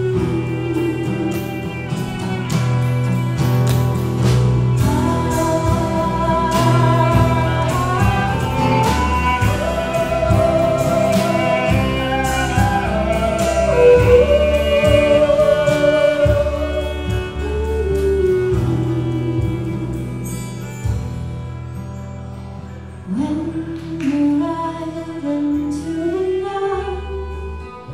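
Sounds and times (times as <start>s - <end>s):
steady drum beat: 0.0s - 21.4s
fiddle melody: 0.0s - 23.6s, 24.4s - 27.9s
strummed acoustic guitars: 0.0s - 27.9s.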